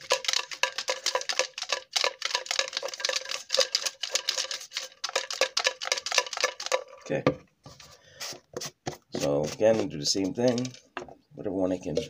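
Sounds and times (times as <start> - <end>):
objects rattling in plastic jar: 0.0 - 7.1, 10.3 - 10.9.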